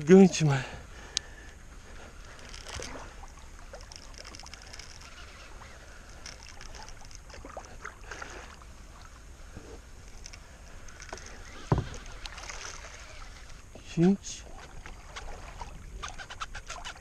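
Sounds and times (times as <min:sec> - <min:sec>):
water lapping against kayak hull: 0:00.3 - 0:17.0
faint clicks: 0:01.1 - 0:07.7, 0:09.5 - 0:13.8.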